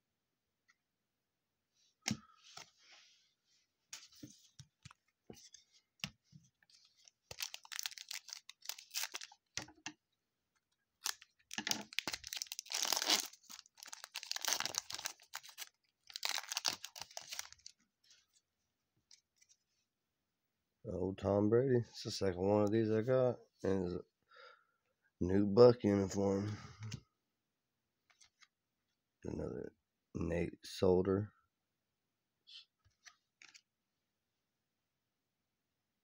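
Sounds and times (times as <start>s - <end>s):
foil wrapper tearing and crinkling: 7.3s - 9.4s, 11.0s - 17.7s.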